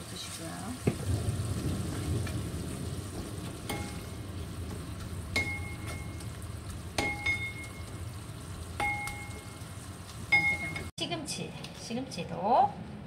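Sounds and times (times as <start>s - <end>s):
frying sizzle: 0.0s - 11.0s
ringing knocks on pot: 5.4s - 6.2s, 7.0s - 7.8s, 8.8s - 9.5s.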